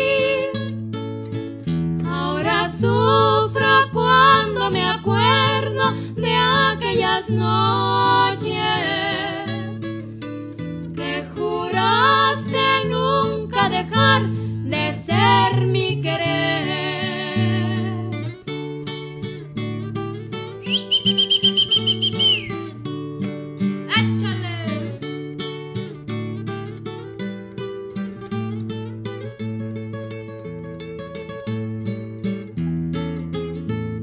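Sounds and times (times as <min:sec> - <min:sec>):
two women singing in harmony: 0:00.0 - 0:00.8, 0:02.0 - 0:09.9, 0:10.9 - 0:18.4
strummed acoustic guitars: 0:00.0 - 0:34.0.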